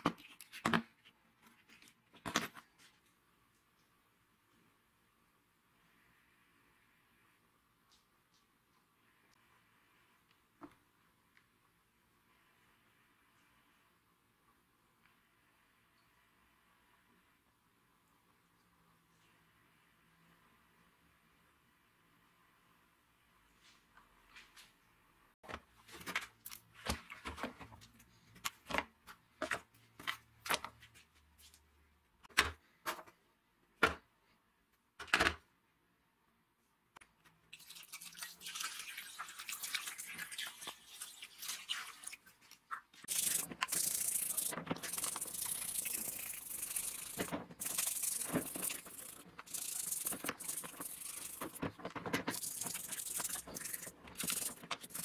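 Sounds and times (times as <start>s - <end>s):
brush scrubbing in soapy water: 38.0s - 51.7s, 52.3s - 55.0s.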